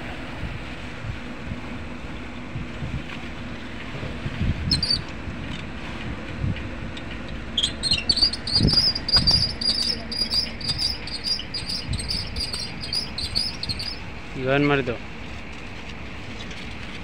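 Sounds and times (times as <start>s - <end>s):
steady low rumble: 0.0s - 17.0s
small bird chirping rapidly: 4.7s - 5.0s, 7.6s - 14.0s.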